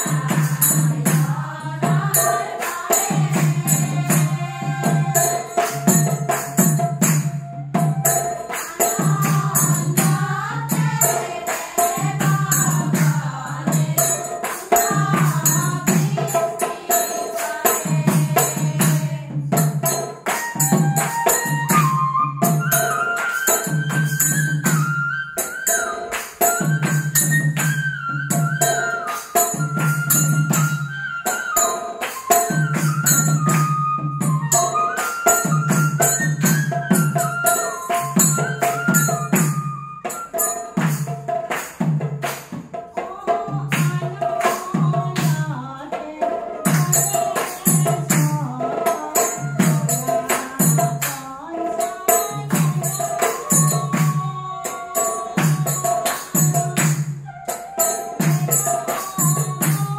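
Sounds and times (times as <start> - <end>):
women's group singing: 0.0 - 21.9, 43.0 - 57.0, 58.1 - 59.9
hand cymbals struck: 0.0 - 45.8, 46.6 - 59.9
small drum: 0.0 - 59.9
bamboo flute melody: 7.2 - 8.8, 20.3 - 40.8, 57.1 - 58.9.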